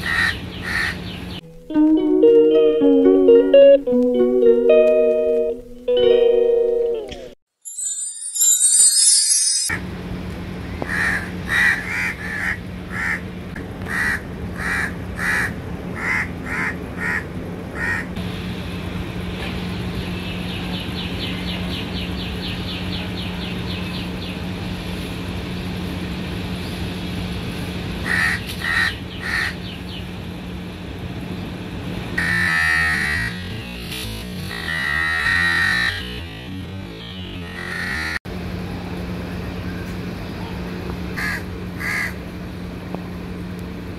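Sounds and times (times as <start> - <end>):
crows cawing: 0.0 - 1.0, 10.9 - 13.2, 13.9 - 17.2, 17.8 - 18.1, 28.0 - 29.6, 34.5 - 36.1, 37.5 - 38.2, 41.2 - 42.2
fast ticking trill: 7.7 - 9.8.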